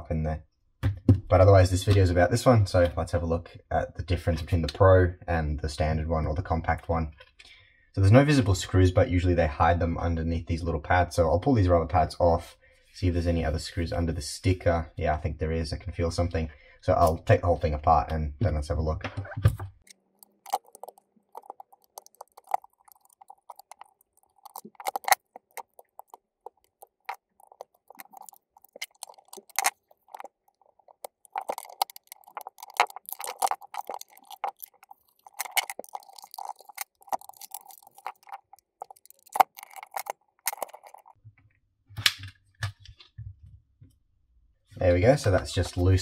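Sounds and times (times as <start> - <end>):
sharp clicks and plastic rattles: 19.1 - 41.2
tweezers scraping plastic: 20.2 - 41.2.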